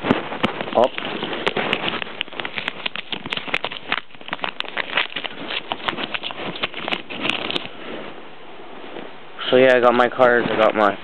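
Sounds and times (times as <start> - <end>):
packaging crinkling and tearing: 0.0 - 7.8.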